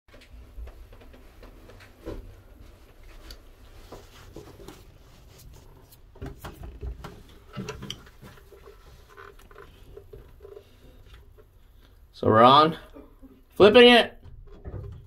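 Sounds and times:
handling knocks and clicks: 0:06.0 - 0:11.5.

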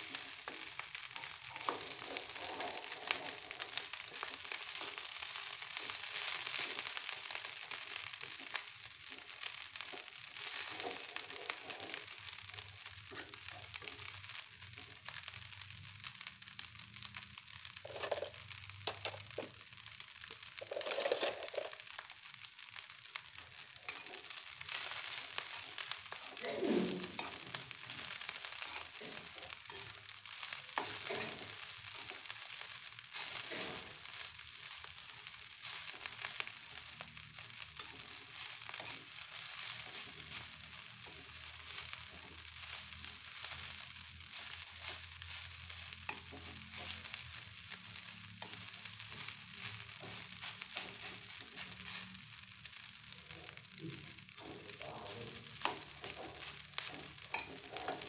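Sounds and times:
rice sizzling in a wok: 0:00.0 - 0:58.0
metal spoon scraping wok: 0:17.8 - 0:19.2, 0:20.6 - 0:21.8, 0:23.9 - 0:30.0, 0:30.8 - 0:32.5, 0:44.4 - 0:47.3, 0:48.4 - 0:52.2, 0:55.5 - 0:58.0.

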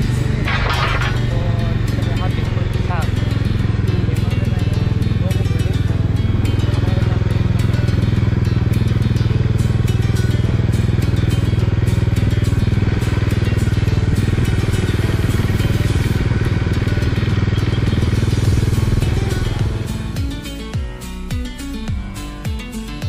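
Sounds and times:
motorcycle engine cruising: 0:00.0 - 0:23.0.

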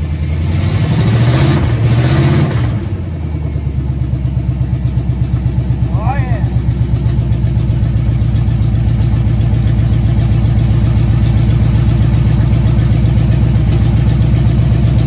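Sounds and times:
engine idling: 0:00.0 - 0:15.0.

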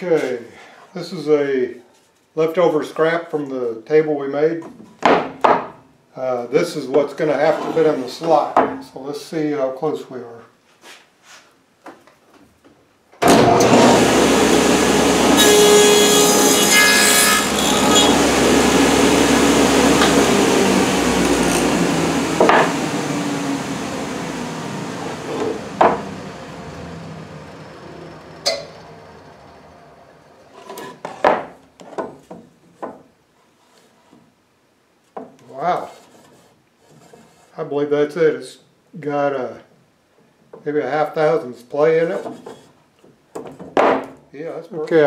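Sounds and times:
table saw cutting wood: 0:13.2 - 0:31.5
saw blade spinning down: 0:13.3 - 0:31.1.

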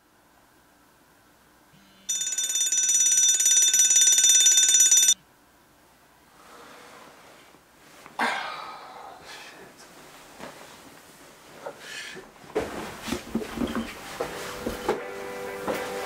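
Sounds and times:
phone buzzing vibration: 0:01.8 - 0:05.2
mobile phone ringing: 0:02.1 - 0:05.2.

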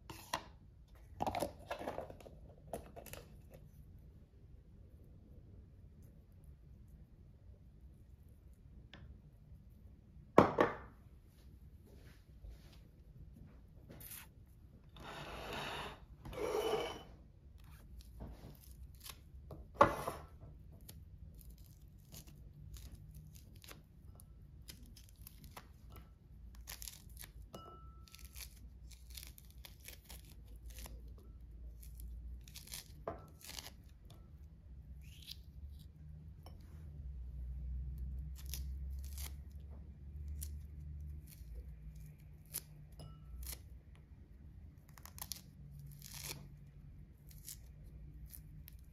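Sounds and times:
loud scrape: 0:14.9 - 0:17.2
peel tearing and crackling: 0:20.8 - 0:23.9, 0:24.6 - 0:25.8, 0:26.5 - 0:27.5, 0:28.1 - 0:34.0, 0:35.0 - 0:35.9, 0:38.3 - 0:39.6, 0:44.8 - 0:48.9.

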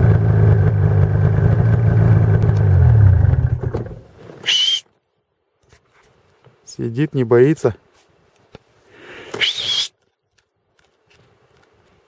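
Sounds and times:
high squeak: 0:04.4 - 0:04.8.

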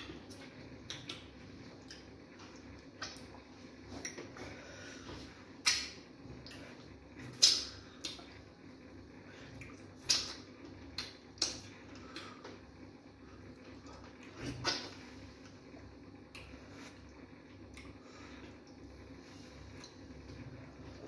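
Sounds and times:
wet eating smacks and slurps: 0:00.1 - 0:04.5, 0:13.4 - 0:15.6.

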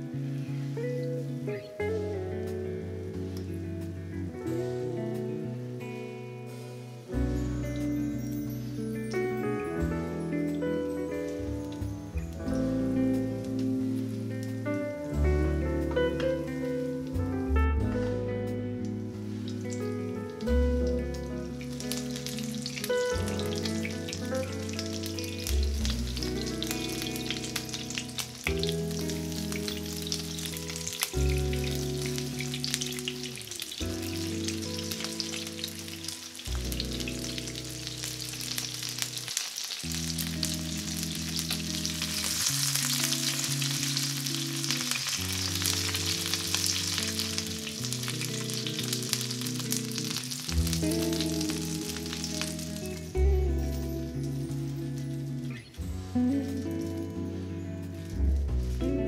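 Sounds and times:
background music with low notes: 0:00.0 - 0:59.0
food sizzling in hot oil: 0:18.7 - 0:59.0.

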